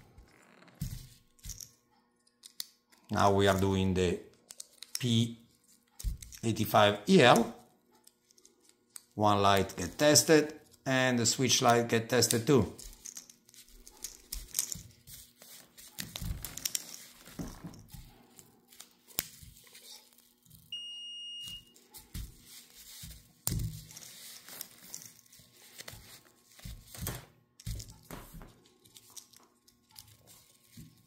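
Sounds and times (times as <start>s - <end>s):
multimeter continuity beep: 20.7s - 21.8s
rustling of wires on foam: 21.5s - 27.1s.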